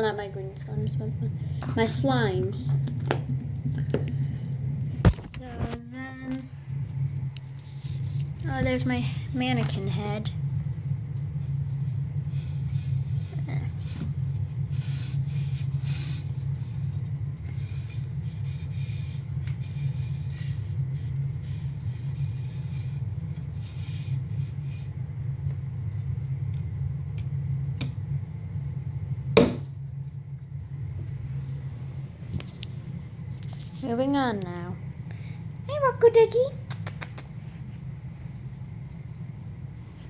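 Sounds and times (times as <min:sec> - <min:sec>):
low steady hum: 0:00.0 - 0:40.0
cloth rubbing scratchy rustling: 0:07.5 - 0:08.4.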